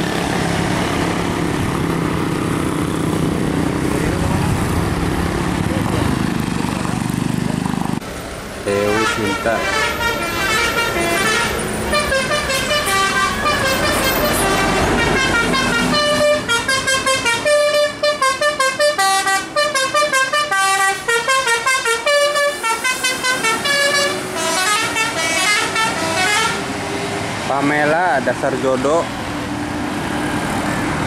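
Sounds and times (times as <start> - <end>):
diesel bus engine rumble: 0.0 - 31.0
bus horns playing a tune: 8.7 - 26.8.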